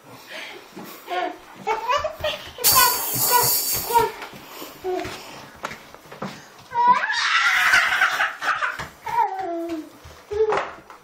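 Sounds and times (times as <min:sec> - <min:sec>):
shrill cry: 0:06.7 - 0:08.4.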